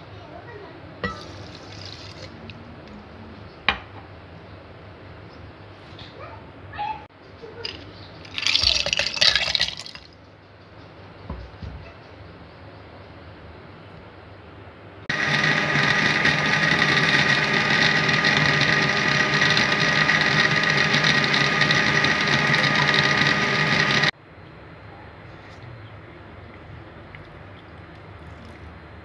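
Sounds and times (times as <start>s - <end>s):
electric blender motor running: 15.1s - 24.1s.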